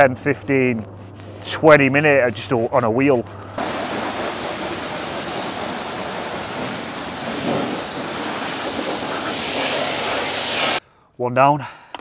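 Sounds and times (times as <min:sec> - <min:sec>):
pressure washer spraying water: 0:03.6 - 0:10.8.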